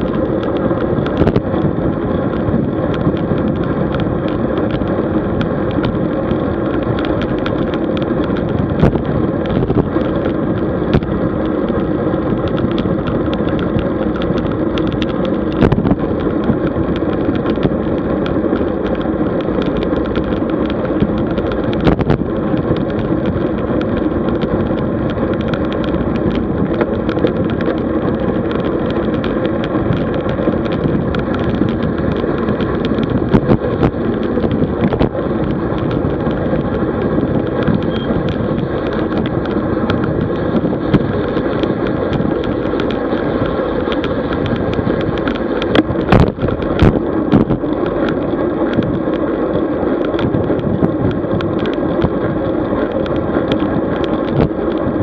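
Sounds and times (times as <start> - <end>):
bicycle knocks and rattles: 0.0 - 55.0
bicycle road noise: 0.0 - 55.0.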